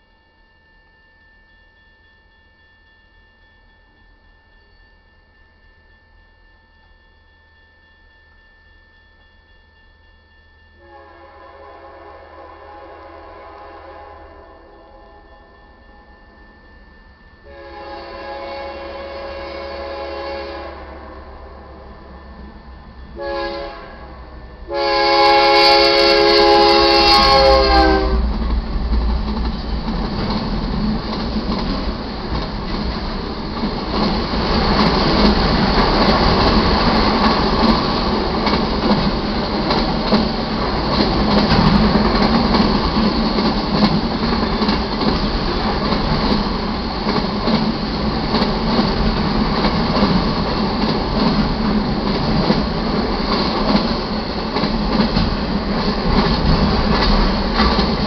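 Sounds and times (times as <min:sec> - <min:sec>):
train wheels rumbling on rails: 0:06.6 - 0:58.0
locomotive air horn blasts: 0:10.8 - 0:16.1, 0:17.4 - 0:21.5, 0:23.2 - 0:28.3.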